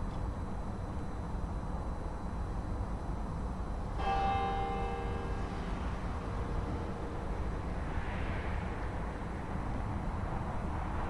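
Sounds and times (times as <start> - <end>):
church bell stroke: 4.0 - 8.7.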